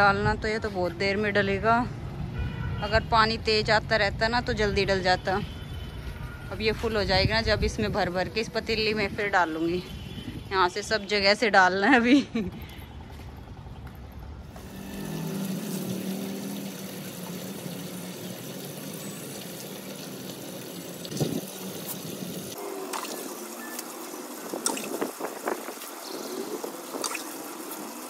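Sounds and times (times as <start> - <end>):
water splashing on concrete: 14.6 - 28.0.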